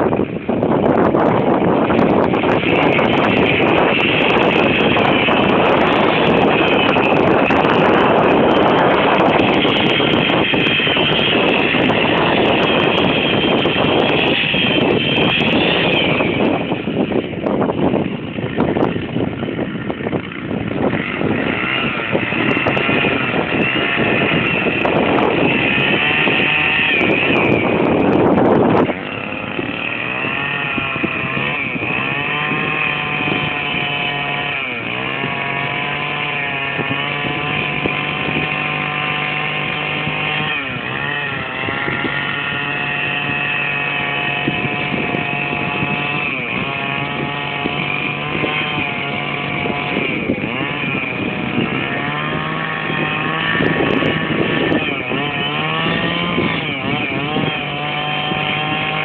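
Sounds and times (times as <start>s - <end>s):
small engine running: 0.0s - 59.0s.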